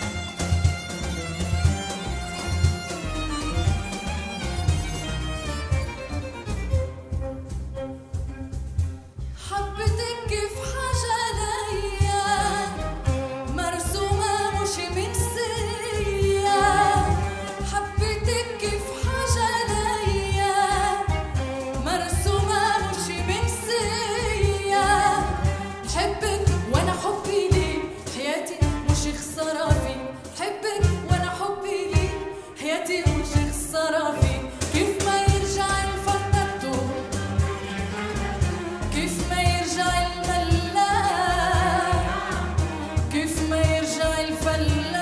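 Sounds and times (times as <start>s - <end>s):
small ensemble with cello: 0.0s - 9.5s, 11.5s - 29.1s, 34.2s - 45.0s
woman singing: 9.4s - 45.0s.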